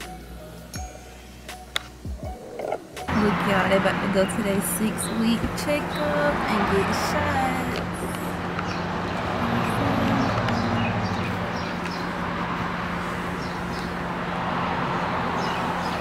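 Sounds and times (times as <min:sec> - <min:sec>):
puppies squeaking: 0:02.1 - 0:03.0.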